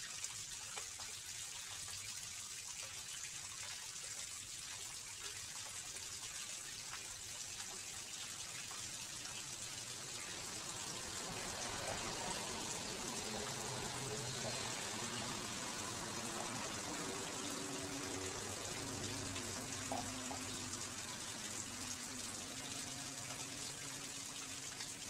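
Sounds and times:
water pouring over stone ledge: 0.0 - 25.0
water splashing into pool: 6.8 - 25.0.

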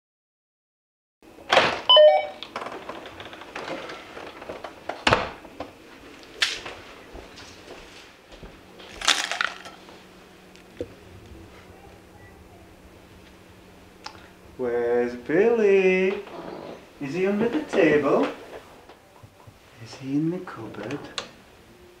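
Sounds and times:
door thudding shut: 1.5 - 2.0, 5.0 - 5.4.

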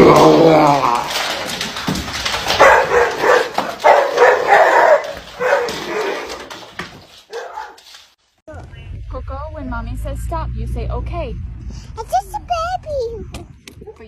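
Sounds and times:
dog barking and yipping: 2.4 - 8.0.

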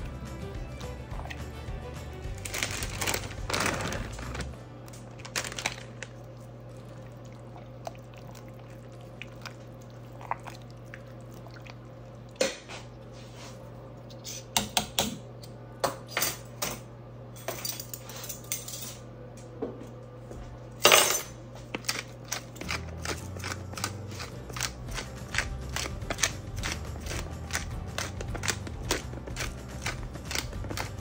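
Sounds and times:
pepper grinder crunchy clicks: 21.8 - 31.0.

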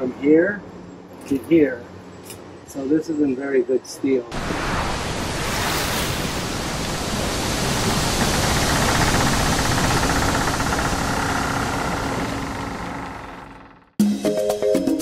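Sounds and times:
loud steady rushing noise: 4.3 - 13.6.

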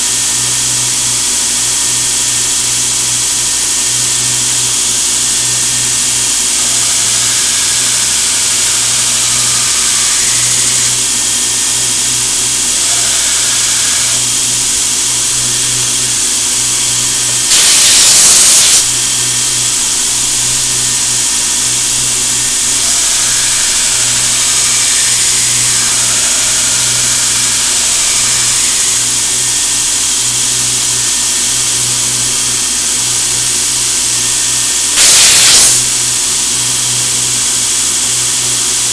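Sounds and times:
belt grinder humming: 0.0 - 38.9
air gun hissing blast: 17.4 - 18.9, 34.8 - 36.1.

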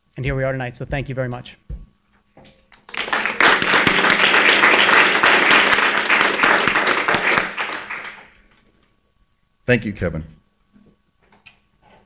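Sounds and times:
audience applauding: 2.8 - 8.4.

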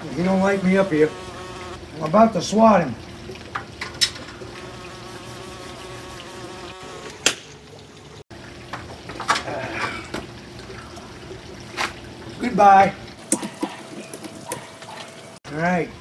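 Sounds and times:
flying insect buzzing: 0.4 - 1.8, 4.5 - 7.2.

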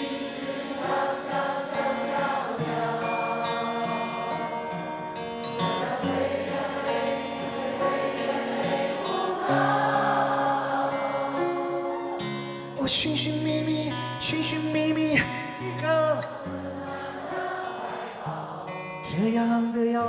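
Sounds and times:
audience singing along: 0.0 - 12.8, 16.3 - 19.2
live band with acoustic guitar: 0.0 - 20.0.

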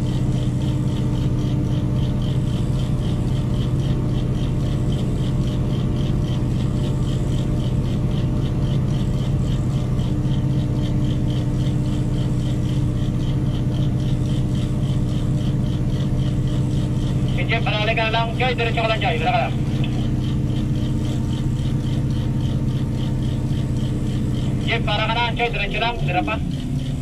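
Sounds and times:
diesel engine running: 0.0 - 27.0.

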